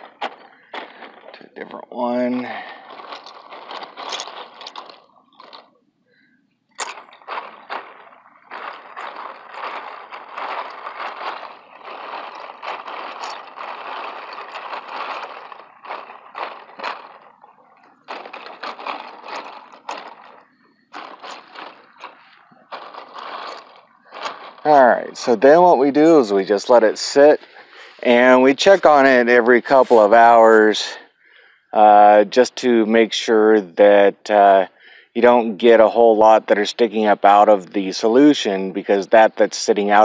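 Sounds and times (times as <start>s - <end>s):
plastic bricks clattering in liquid: 0.0s - 5.7s, 6.8s - 30.8s.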